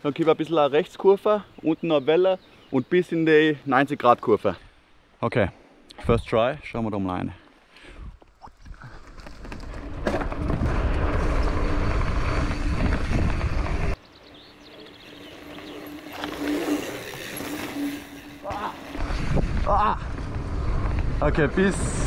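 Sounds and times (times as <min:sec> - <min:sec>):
bike tyres rushing: 0:08.7 - 0:22.0.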